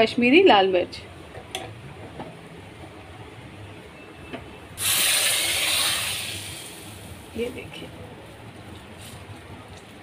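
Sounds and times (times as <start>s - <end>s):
oil sizzling in a pot: 4.8s - 7.6s.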